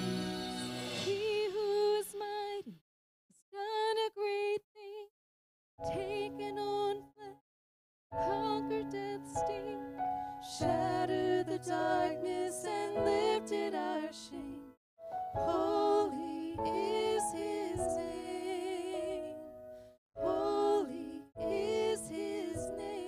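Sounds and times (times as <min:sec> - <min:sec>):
women singing: 0:01.0 - 0:02.8, 0:03.6 - 0:05.1, 0:05.8 - 0:07.4, 0:08.2 - 0:14.8, 0:15.4 - 0:19.4, 0:20.2 - 0:23.0.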